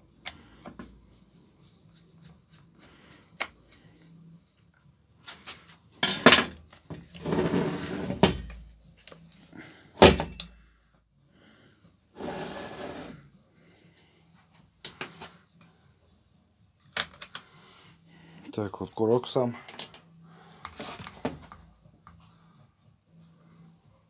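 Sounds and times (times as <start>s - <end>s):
scraping on metal workbench: 7.2s - 8.5s, 12.2s - 13.2s.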